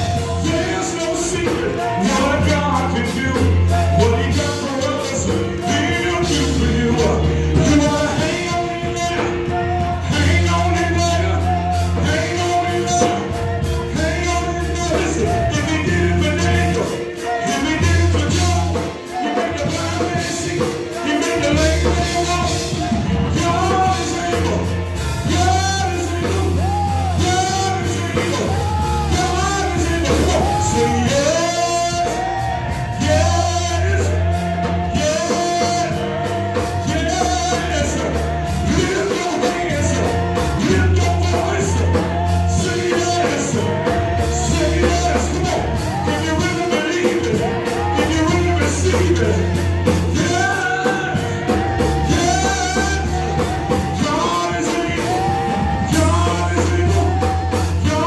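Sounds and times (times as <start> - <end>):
gospel song with band: 0.0 - 58.0.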